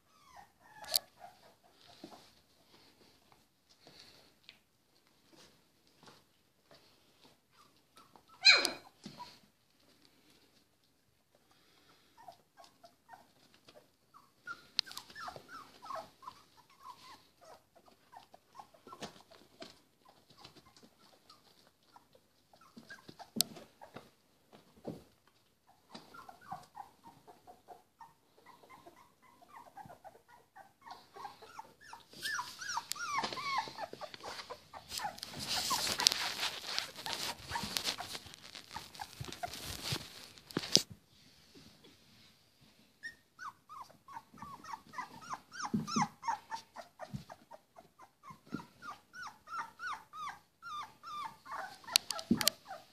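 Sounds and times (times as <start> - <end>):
puppies whimpering and squeaking: 0.0 - 2.9, 6.8 - 9.4, 11.9 - 24.1, 25.4 - 40.4, 43.0 - 52.9
rustling and scraping: 0.3 - 8.3, 11.6 - 27.7, 30.8 - 43.0.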